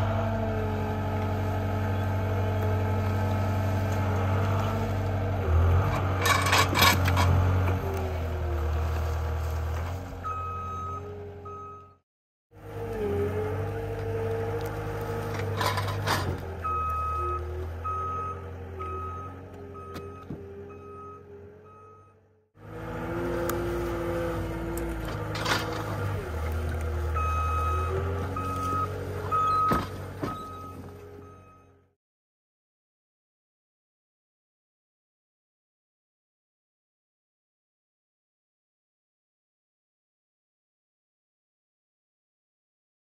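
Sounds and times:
diesel engine running under load: 0.0s - 12.0s, 12.6s - 31.9s
reversing alarm beeping: 10.2s - 12.0s, 16.6s - 22.3s, 27.1s - 31.8s.

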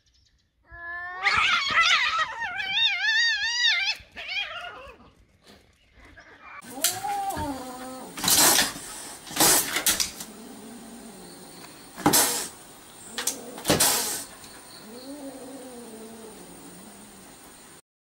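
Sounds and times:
cat yowling: 6.6s - 17.4s
cat hissing: 6.6s - 17.8s.

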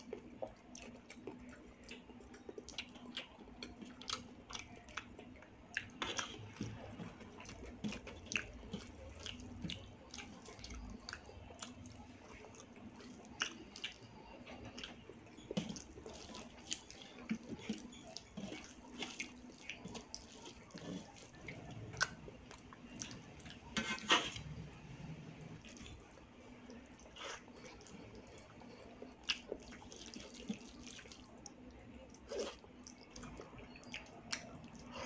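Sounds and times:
fingers squishing wet rice: 5.8s - 24.3s.

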